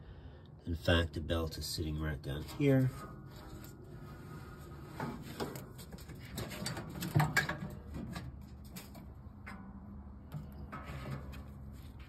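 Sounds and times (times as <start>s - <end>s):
rustles and scrapes of rubber belt: 2.3s - 9.2s, 10.6s - 12.0s.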